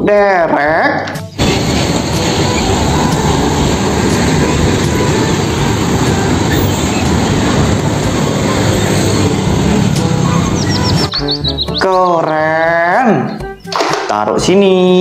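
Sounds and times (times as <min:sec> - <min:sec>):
heavy vehicle engine rumbling: 0:01.3 - 0:11.8.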